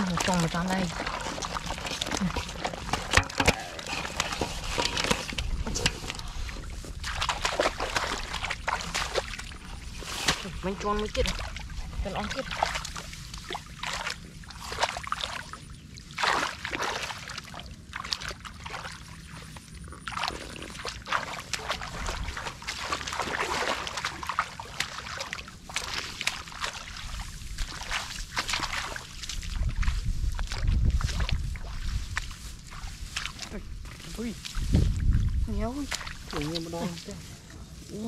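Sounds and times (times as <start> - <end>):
shallow water splashing: 0.0 - 38.0.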